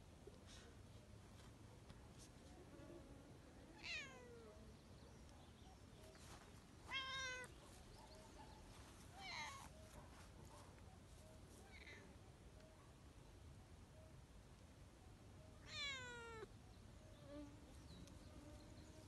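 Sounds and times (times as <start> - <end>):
cat meowing: 6.9 - 7.5, 15.6 - 16.5.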